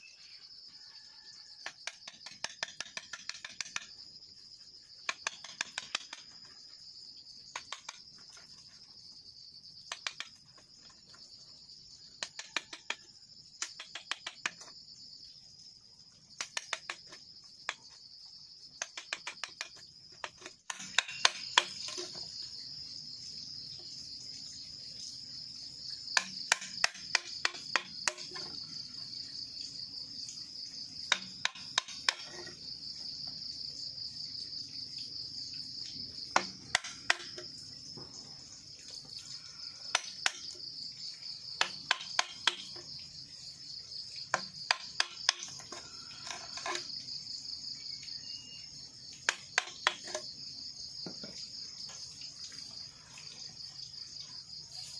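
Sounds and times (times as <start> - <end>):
high insect drone: 0.0 - 54.9
hammer tapping chisel into bamboo: 1.6 - 4.0, 5.0 - 6.5, 7.5 - 8.2, 9.9 - 10.4, 12.2 - 14.7, 16.4 - 18.0, 18.8 - 22.2, 26.2 - 28.6, 31.1 - 32.6, 36.3 - 37.5, 39.9 - 40.6, 41.6 - 42.9, 44.2 - 46.9, 49.3 - 50.3.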